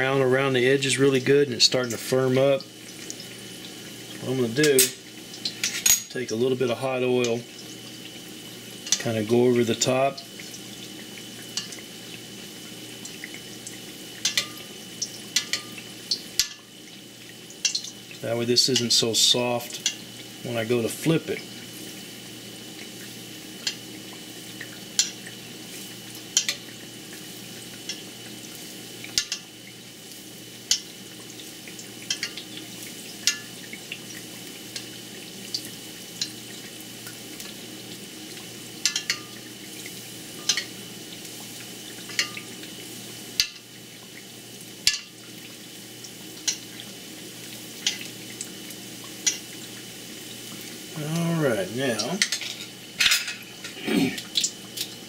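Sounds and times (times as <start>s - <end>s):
oil sizzling with crackling pops: 0.0s - 55.0s
scraping in skillet: 52.2s - 54.2s.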